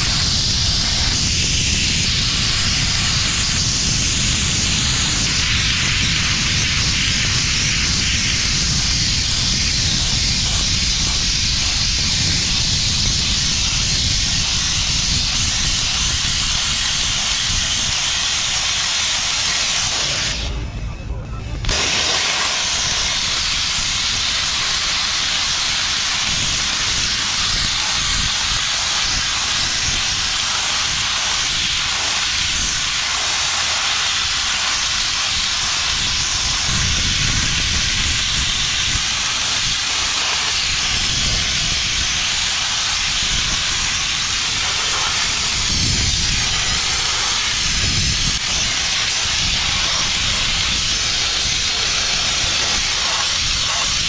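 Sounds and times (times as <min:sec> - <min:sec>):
blast nozzle hissing: 0:00.0 - 0:20.8, 0:21.5 - 0:54.0
low rumble: 0:19.7 - 0:29.0.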